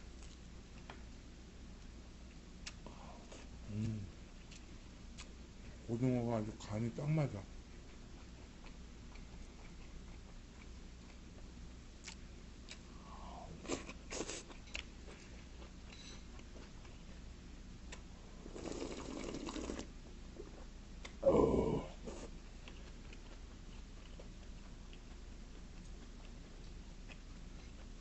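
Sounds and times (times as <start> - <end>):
soft chewing: 0.1 - 1.1, 1.8 - 5.9, 6.6 - 28.0
slurping soup: 18.5 - 19.9.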